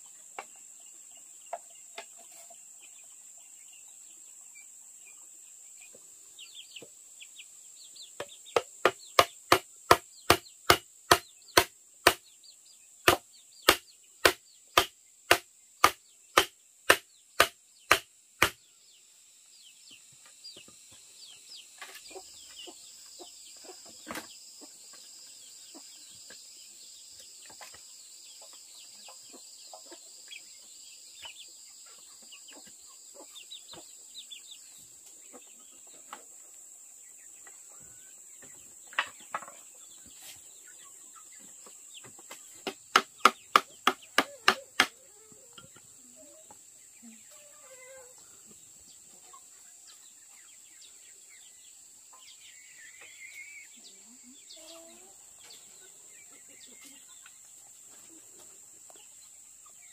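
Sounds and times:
blade chopping strikes: 13.1 - 18.6.

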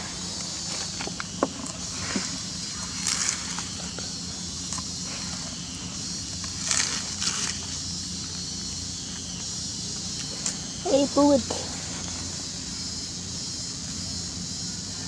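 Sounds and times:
rustling and crunching: 0.0 - 10.6
steady high hiss: 0.0 - 15.0.

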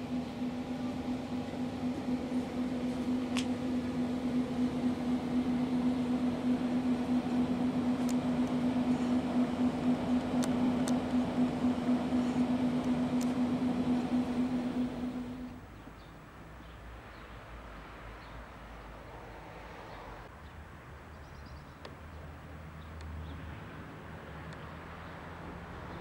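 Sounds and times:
steady mechanical hum: 0.0 - 15.9.

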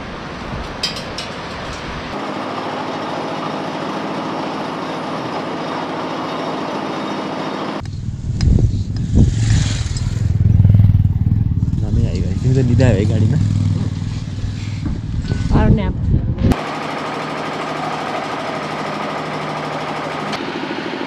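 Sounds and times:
vehicle engine and road noise: 0.0 - 16.7.

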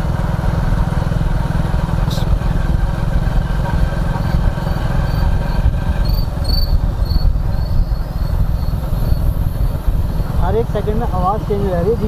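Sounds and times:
motorcycle engine running: 0.0 - 12.0
crickets chirping: 4.7 - 10.4.

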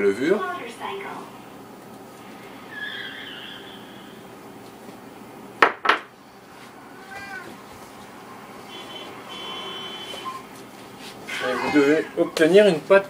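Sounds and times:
cat meowing: 6.9 - 7.6.

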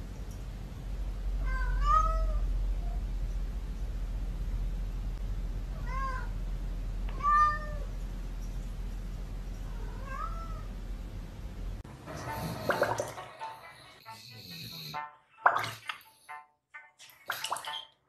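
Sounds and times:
low steady hum: 0.0 - 14.0
cat meowing: 1.4 - 3.0, 5.8 - 6.4, 7.1 - 7.9, 9.7 - 10.7.

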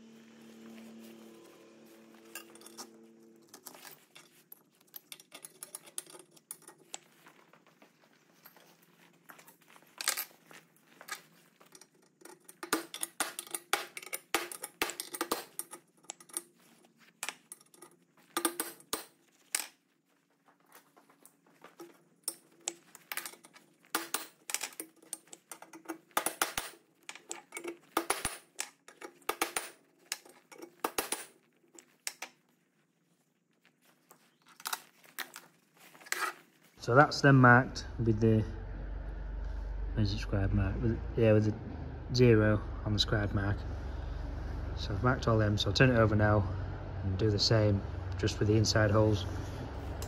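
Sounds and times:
metal punches clinking in holes: 11.7 - 16.4, 17.2 - 19.8, 22.3 - 31.3.

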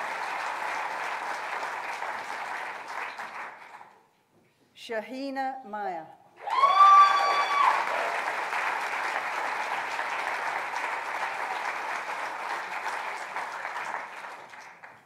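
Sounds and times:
audience applauding: 0.0 - 4.0, 6.4 - 15.0
person whooping: 6.4 - 7.9.

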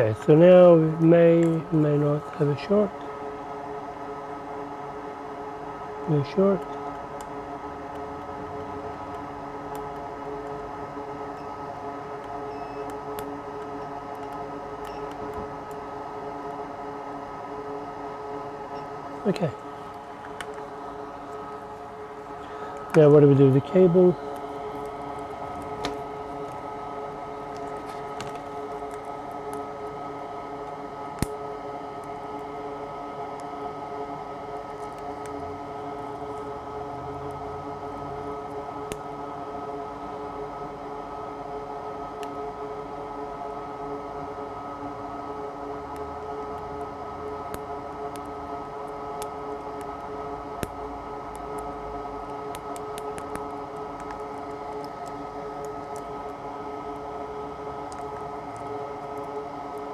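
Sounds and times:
small fan machine humming: 0.0 - 59.9
faint clicks and taps: 52.3 - 56.4.

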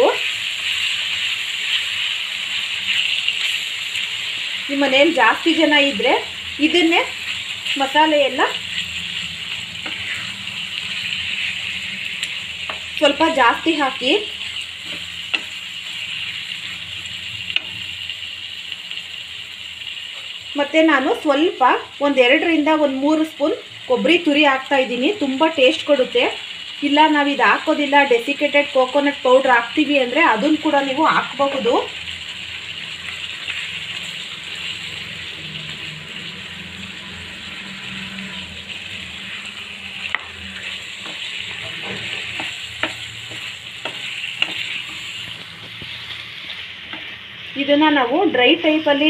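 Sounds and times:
food sizzling in a frying pan: 0.0 - 49.0
spatula stirring: 7.1 - 16.8, 39.2 - 47.2.

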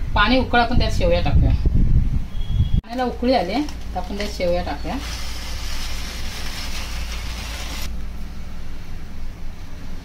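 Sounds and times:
water hissing in frying pan: 5.0 - 7.9.

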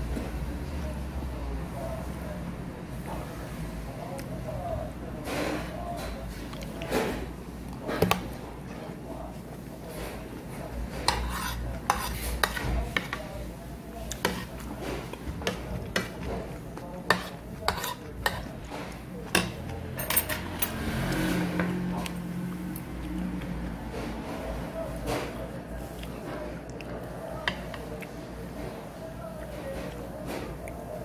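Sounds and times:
metal spoon scraping ceramic plate: 11.0 - 13.2, 17.1 - 18.7.

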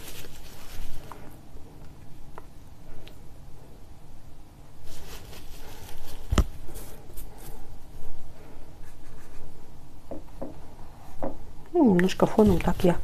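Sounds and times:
brush scratching on canvas: 8.8 - 9.6.

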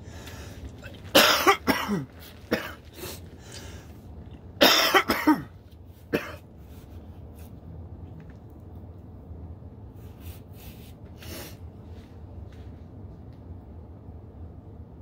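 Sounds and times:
man coughing: 1.1 - 2.8, 4.6 - 6.4.

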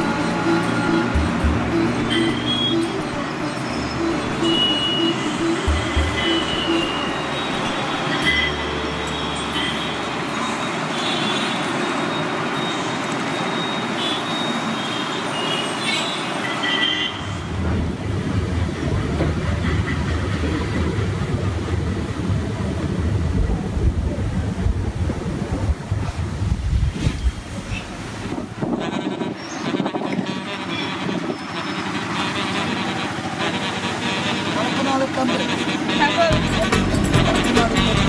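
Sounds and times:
deep rough train rumble: 0.0 - 4.6, 5.2 - 9.1, 17.4 - 30.3
passenger train wheels on rails: 17.2 - 28.6.

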